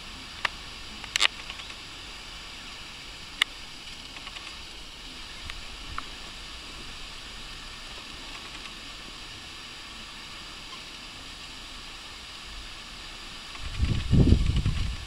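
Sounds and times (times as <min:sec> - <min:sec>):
outdoor ambience hiss: 0:00.0 - 0:15.0
faint clicks: 0:00.4 - 0:01.8, 0:03.3 - 0:04.7, 0:05.4 - 0:06.2, 0:08.0 - 0:08.9, 0:13.4 - 0:15.0.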